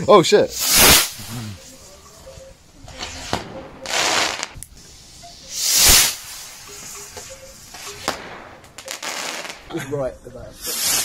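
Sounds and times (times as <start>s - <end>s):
fireworks hissing: 0.4s - 2.2s, 2.9s - 9.8s, 10.4s - 11.0s
fireworks whoosh: 0.5s - 1.4s, 3.0s - 9.7s, 10.6s - 11.0s
fireworks cracks: 0.5s - 2.0s, 2.8s - 9.8s, 10.6s - 11.0s.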